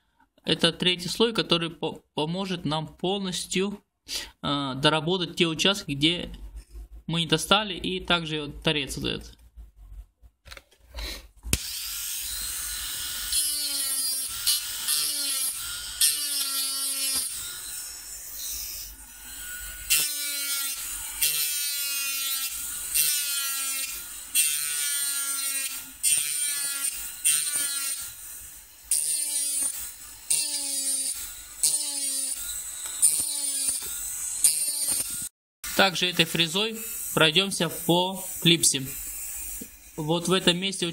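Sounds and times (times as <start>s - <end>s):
rotary tool motor whine: 11.6s - 35.3s, 38.2s - 40.0s.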